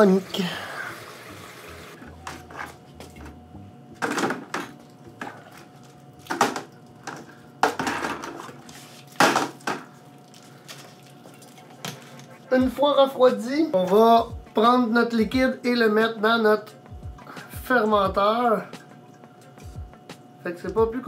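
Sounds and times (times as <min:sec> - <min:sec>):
faint pump hum: 0:00.0 - 0:21.0
brewing equipment clanking: 0:01.5 - 0:16.4.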